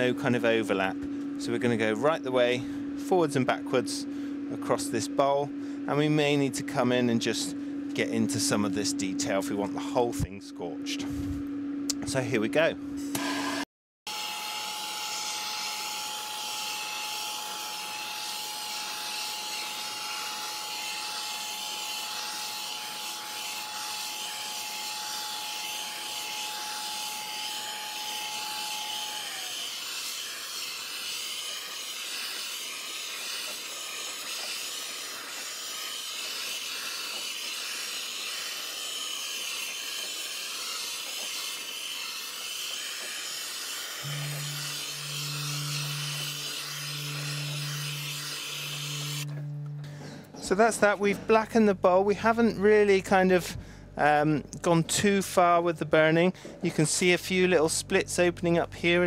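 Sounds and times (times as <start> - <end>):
blowtorch flame hissing: 28.5 - 49.3.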